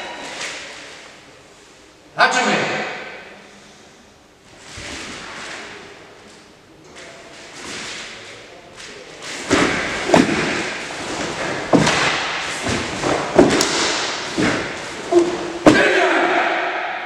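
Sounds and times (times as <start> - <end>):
uniforms snapping: 8.8 - 16.0
bare feet stamping on wooden floor: 9.5 - 15.9.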